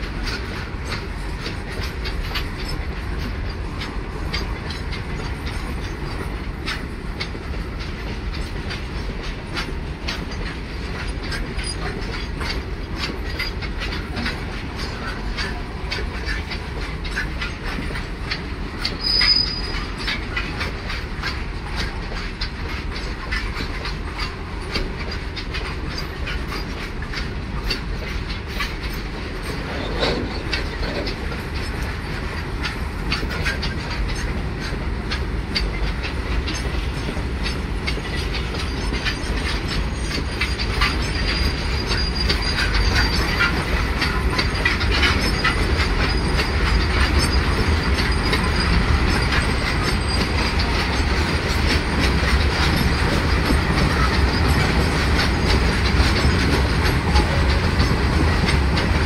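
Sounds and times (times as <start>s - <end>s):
wheels clacking over rail joints: 0.0s - 59.0s
high wheel squeal: 18.9s - 20.0s, 39.9s - 51.1s.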